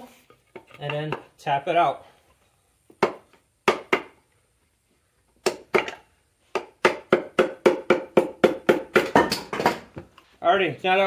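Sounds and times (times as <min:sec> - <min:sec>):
hammer knocking on wooden stick: 0:06.6 - 0:09.8.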